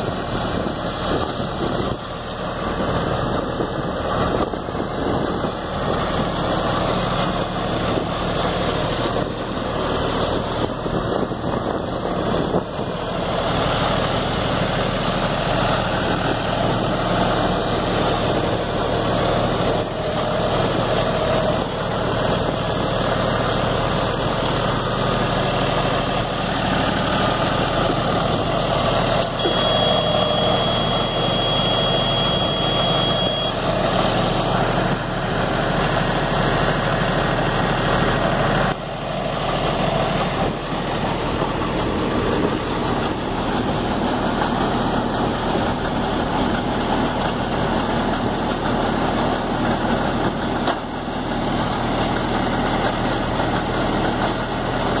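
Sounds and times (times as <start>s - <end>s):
round baler gathering straw: 0.0s - 55.0s
tractor engine running: 0.0s - 55.0s
steady high-pitched tone: 29.4s - 33.6s.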